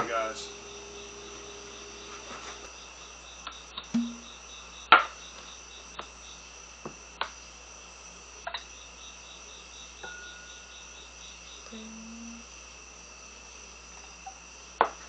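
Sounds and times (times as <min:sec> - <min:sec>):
cork popping: 0:03.9 - 0:04.3
bottle and glass knocks on wood: 0:04.0 - 0:04.3.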